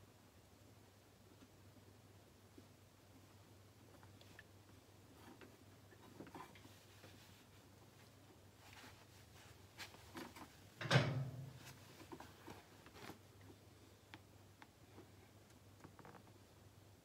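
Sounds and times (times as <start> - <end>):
tool clunk: 10.8 - 11.6.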